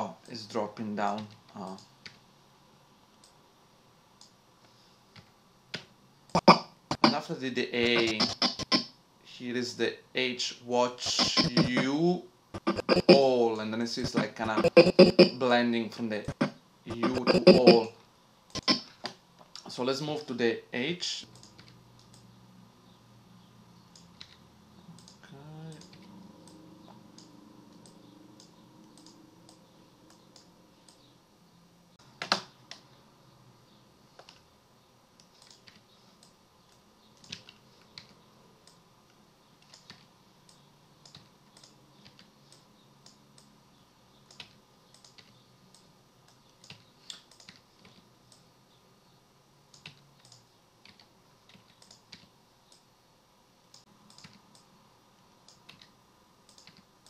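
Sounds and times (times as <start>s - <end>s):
computer keyboard and mouse clicks: 7.9s - 8.9s, 21.3s - 22.3s, 23.9s - 24.4s, 27.2s - 31.1s, 32.1s - 32.9s, 34.2s - 34.4s, 35.2s - 38.8s, 39.6s - 43.5s, 44.3s - 48.4s, 49.7s - 52.8s, 53.7s - 54.7s, 55.5s - 55.9s, 56.5s - 56.9s.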